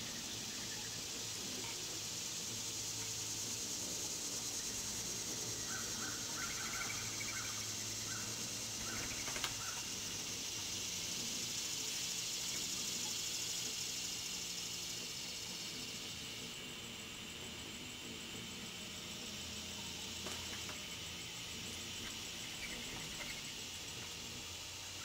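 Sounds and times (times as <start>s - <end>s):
high-pitched insect drone: 0.0s - 25.0s.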